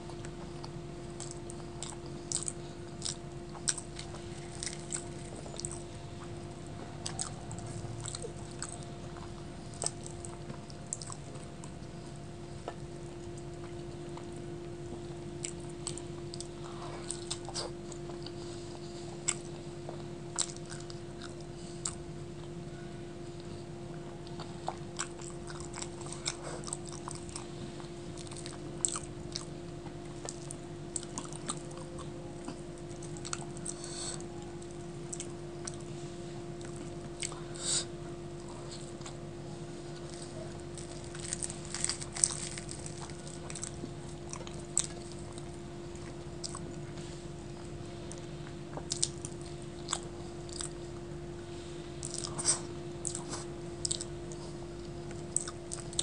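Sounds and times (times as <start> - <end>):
chewing with mouth clicks: 0.0 - 22.6, 23.4 - 36.0, 36.6 - 50.9, 52.0 - 56.0
steady low hum: 0.0 - 56.0.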